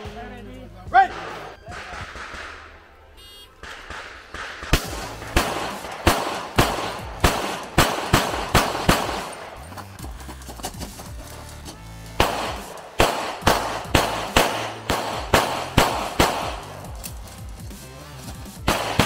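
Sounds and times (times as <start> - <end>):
pistol shots: 1.0 - 9.6, 12.2 - 17.1, 18.6 - 19.0.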